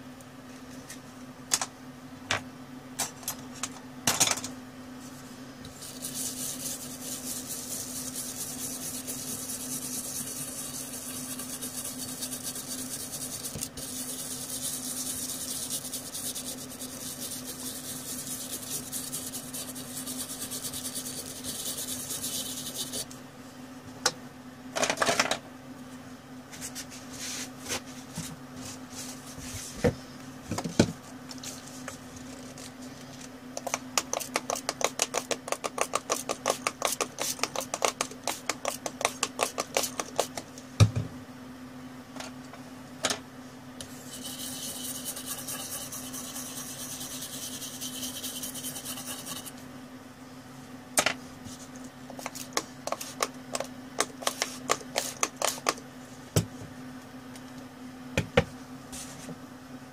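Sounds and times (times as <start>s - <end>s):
steady low hum: 0.0s - 59.9s
brush scrubbing scratchy rasp: 5.7s - 23.1s, 43.9s - 49.6s.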